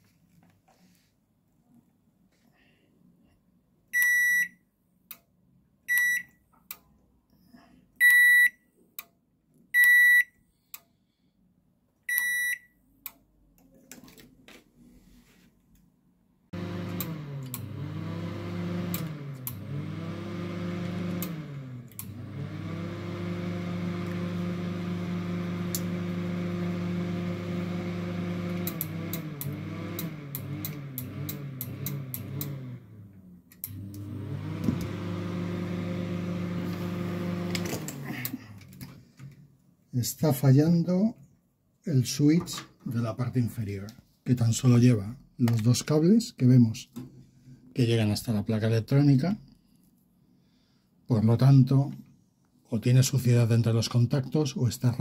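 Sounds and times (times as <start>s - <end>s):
microwave beeps: 4.0s - 4.6s, 5.9s - 6.4s, 8.0s - 8.6s, 9.8s - 10.4s, 12.1s - 12.7s
microwave motor hum: 16.5s - 39.3s.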